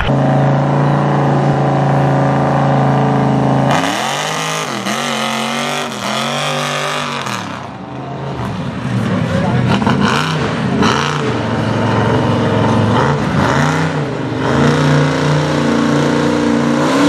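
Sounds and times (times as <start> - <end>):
truck engine revving: 0.0 - 17.0.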